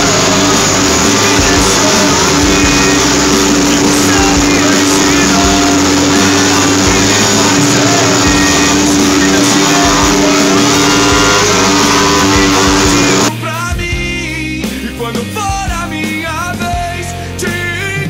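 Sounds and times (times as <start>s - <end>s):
motorcycles roaring: 0.0s - 13.3s
rock music with singing: 0.0s - 18.0s.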